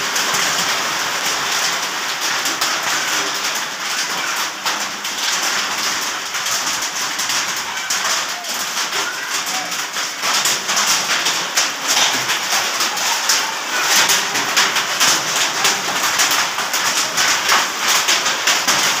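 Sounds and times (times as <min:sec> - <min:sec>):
hail pelting down: 0:00.0 - 0:19.0.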